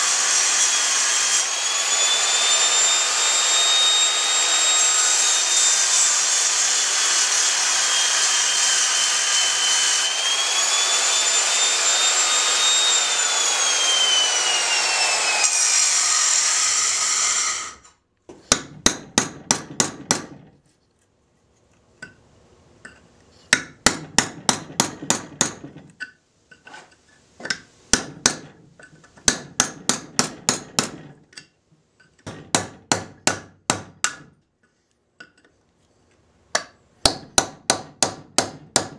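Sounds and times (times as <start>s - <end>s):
angle grinder grinding metal: 0.0s - 18.0s
hammering on a metal chisel: 18.3s - 20.5s, 22.9s - 25.8s, 27.4s - 31.5s, 32.1s - 34.4s, 36.5s - 38.9s.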